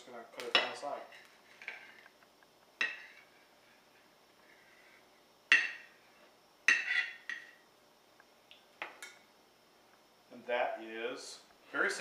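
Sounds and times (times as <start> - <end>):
knife clinking on ceramic plate: 6.7 - 7.6.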